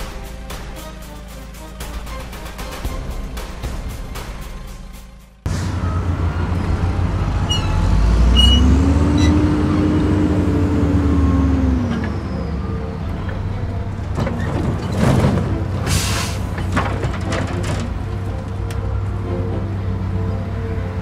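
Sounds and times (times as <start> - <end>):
truck engine running: 0.0 - 21.0
crane winch whine: 5.6 - 14.5.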